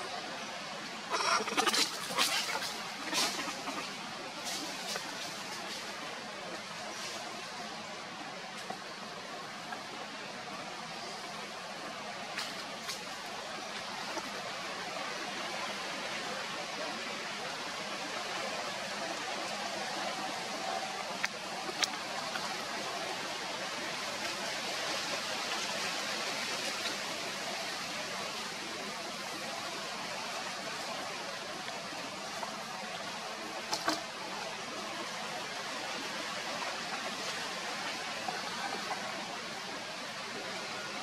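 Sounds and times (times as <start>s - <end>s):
forest background hiss: 0.0s - 41.0s.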